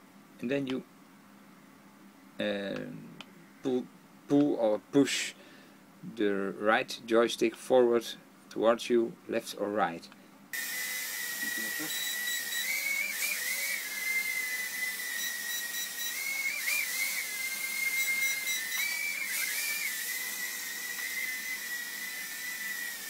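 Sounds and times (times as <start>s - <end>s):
mini drone propellers whining: 10.6s - 23.0s.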